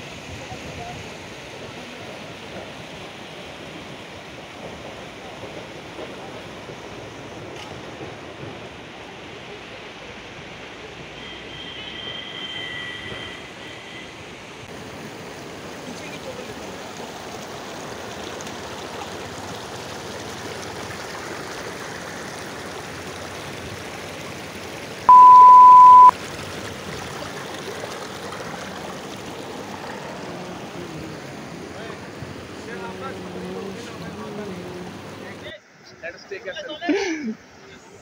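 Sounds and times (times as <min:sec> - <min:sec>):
river rushing over rocks: 0:14.6 - 0:35.6
loud steady beep: 0:25.1 - 0:26.1.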